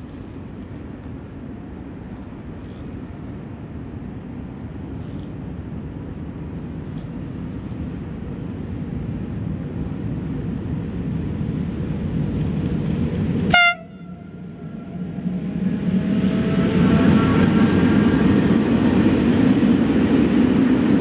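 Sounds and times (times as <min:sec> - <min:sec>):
train rumbling: 0:00.0 - 0:21.0
locomotive horn blast: 0:13.5 - 0:15.0.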